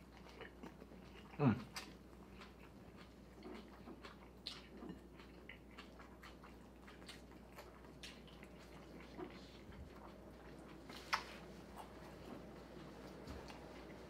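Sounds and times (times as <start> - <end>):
people chewing food: 0.0 - 14.0.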